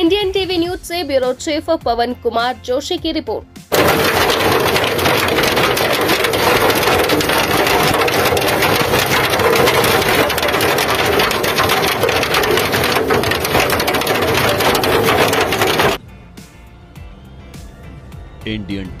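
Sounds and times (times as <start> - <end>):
hailstones pelting the ground: 3.7 - 16.0.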